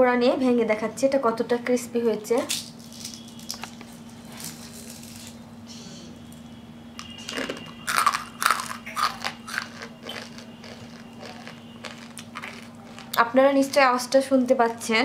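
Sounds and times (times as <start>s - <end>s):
crispy fritter crunching: 2.5s - 5.4s, 7.0s - 14.2s.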